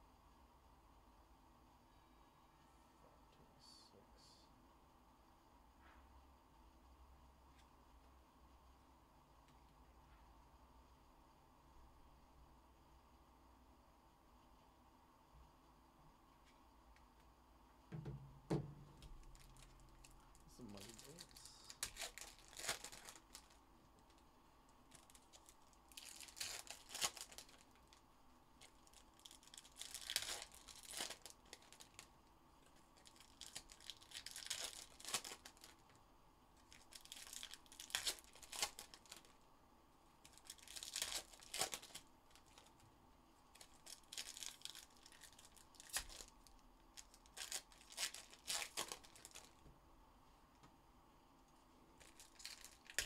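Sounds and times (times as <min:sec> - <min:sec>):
foil wrappers tearing and crinkling: 0:18.9 - 0:24.2, 0:24.9 - 0:28.0, 0:28.6 - 0:32.1, 0:33.0 - 0:35.9, 0:36.6 - 0:39.4, 0:40.2 - 0:42.8, 0:43.5 - 0:49.6, 0:52.0 - 0:53.0.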